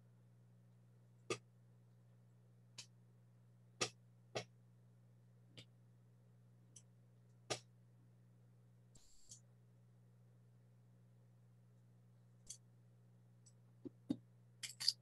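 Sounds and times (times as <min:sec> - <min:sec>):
faint low hum: 0:00.0 - 0:15.0
small sharp clicks and taps: 0:01.2 - 0:01.5, 0:02.8 - 0:03.0.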